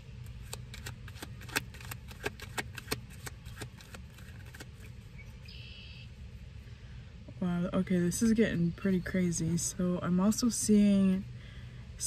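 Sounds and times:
steady low hum: 0.0s - 12.0s
cards being shuffled: 0.2s - 5.1s.

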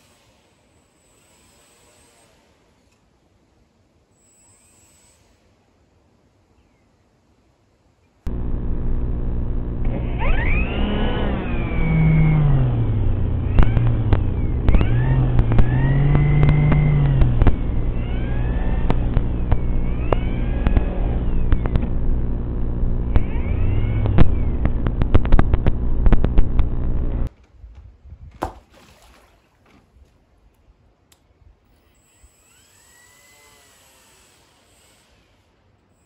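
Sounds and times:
model boat motor whine: 8.3s - 27.3s
sharp clicks: 13.4s - 22.2s, 22.8s - 27.3s.

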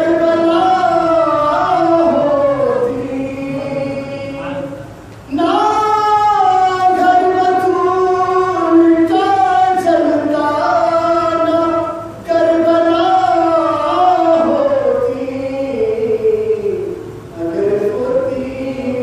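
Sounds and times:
man singing unaccompanied: 0.0s - 19.0s.

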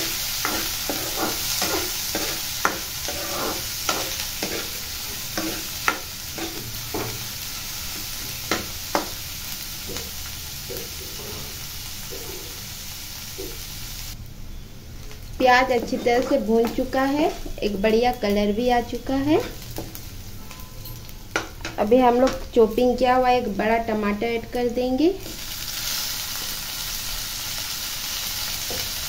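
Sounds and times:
spatula scraping and knocking pan: 0.0s - 9.2s, 15.4s - 17.6s, 19.4s - 20.0s
food sizzling in oil: 0.0s - 29.0s.

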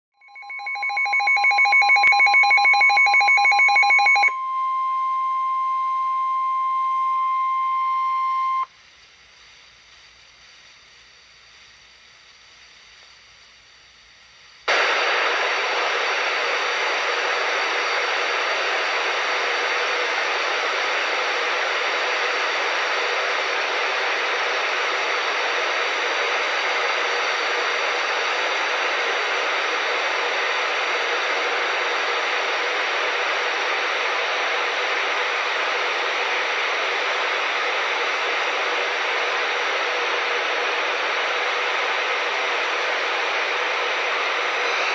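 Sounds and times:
steady warning alarm tone: 0.2s - 8.6s
loud steady hiss: 8.7s - 44.9s.

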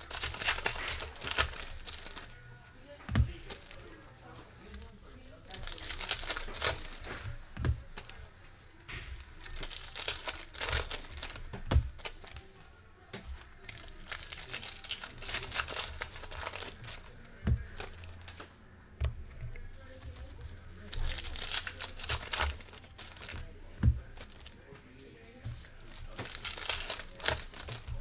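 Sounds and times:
foil wrappers crinkling and tearing: 0.0s - 2.4s, 3.2s - 12.7s, 13.3s - 18.4s, 19.8s - 28.0s.

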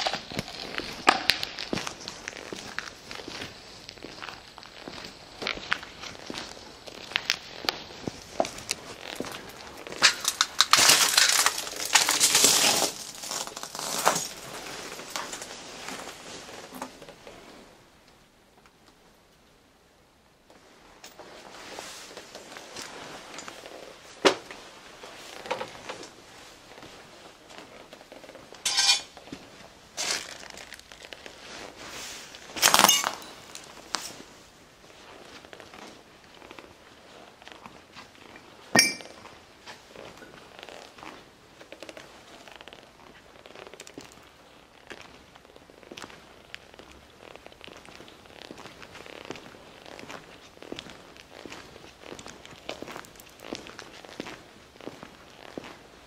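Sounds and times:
footsteps crunching over debris: 0.0s - 17.4s, 20.5s - 56.0s
broken glass crunching underfoot: 4.0s - 15.5s, 28.6s - 29.1s, 30.0s - 31.2s, 32.5s - 34.1s, 52.3s - 53.9s.

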